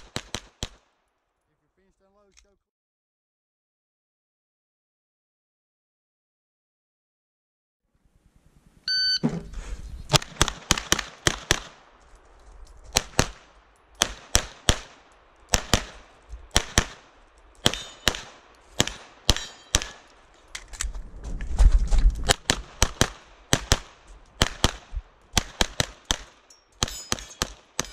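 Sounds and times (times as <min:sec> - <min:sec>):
pistol firing rapid shots: 0:00.0 - 0:00.9, 0:10.1 - 0:11.8, 0:13.0 - 0:20.1, 0:22.3 - 0:27.9
shot timer beep: 0:08.9 - 0:09.3.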